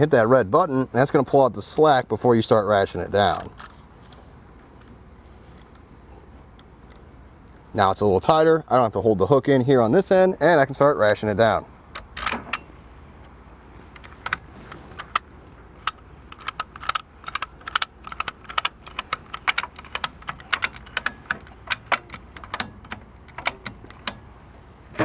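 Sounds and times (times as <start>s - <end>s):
ratchet strap clicking: 14.0s - 24.3s.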